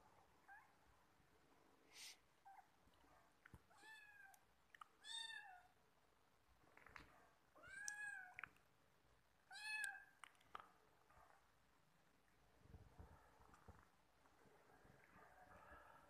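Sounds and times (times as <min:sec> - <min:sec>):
cat meowing: 0:07.6 - 0:08.4.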